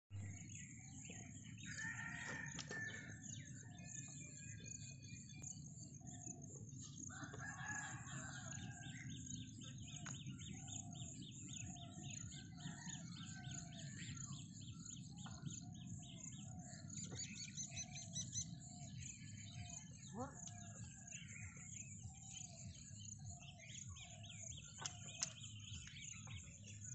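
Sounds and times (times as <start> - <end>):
birds chirping: 0.1 - 6.3, 7.1 - 26.9
rooster crowing: 1.7 - 3.2, 7.2 - 8.8.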